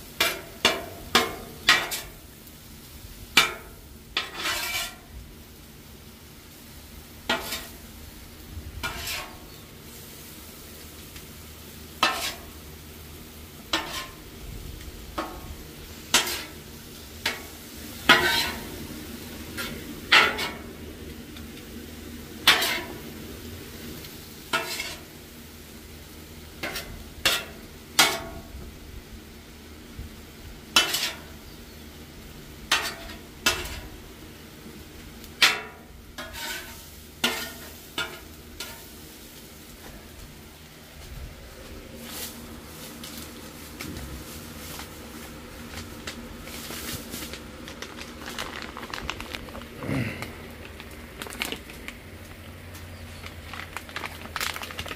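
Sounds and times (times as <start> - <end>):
food sizzling: 0.0 - 41.0
metal spatula scraping griddle: 0.1 - 2.3, 3.3 - 5.2, 7.2 - 7.9, 8.8 - 10.4, 11.9 - 12.7, 13.5 - 14.4, 15.1 - 18.8, 19.4 - 20.8, 22.4 - 23.1, 24.5 - 25.2, 26.5 - 28.5, 30.7 - 31.4, 32.7 - 34.0, 35.4 - 39.1.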